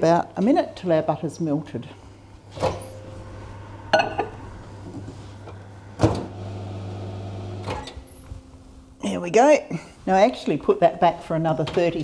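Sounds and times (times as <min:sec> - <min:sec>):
microwave oven humming: 0:02.8 - 0:08.2.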